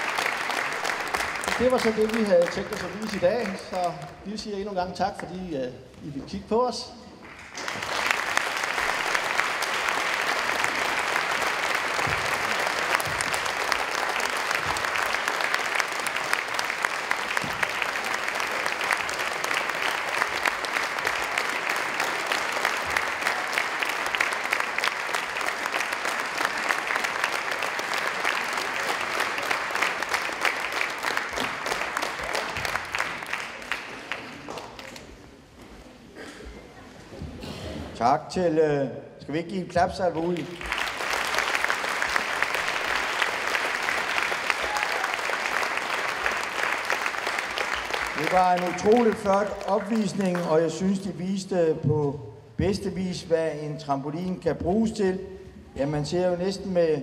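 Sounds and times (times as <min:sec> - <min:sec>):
audience applauding: 0:00.0 - 0:04.5, 0:07.2 - 0:35.1, 0:40.2 - 0:51.0.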